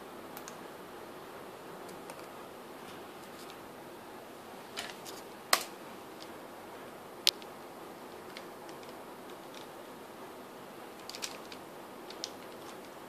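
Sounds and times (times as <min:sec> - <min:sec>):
room hiss: 0:00.0 - 0:13.0
plastic cube being handled: 0:11.0 - 0:13.0.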